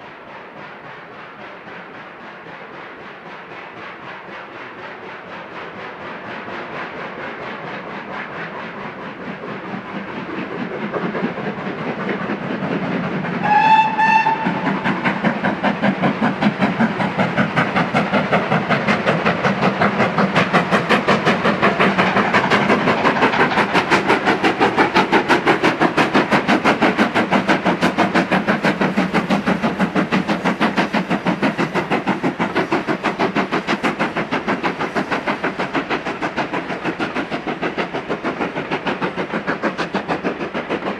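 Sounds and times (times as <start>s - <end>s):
steam locomotive exhaust beating: 0.0s - 40.9s
steam whistle blast: 13.4s - 14.7s.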